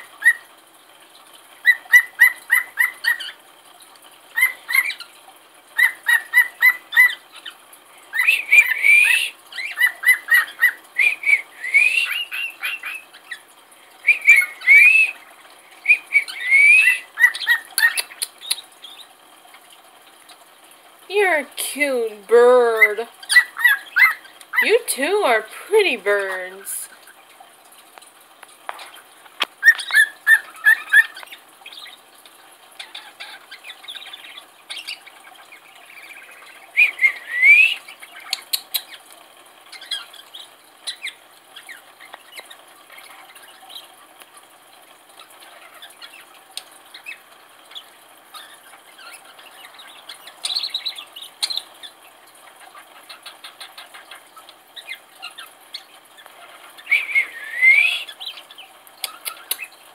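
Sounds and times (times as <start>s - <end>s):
birds chirping and chattering: 1.6s - 3.5s, 4.2s - 19.7s, 21.2s - 27.2s, 28.8s - 44.0s, 45.0s - 59.9s
bird rising whistle: 36.8s - 37.8s, 56.9s - 58.1s.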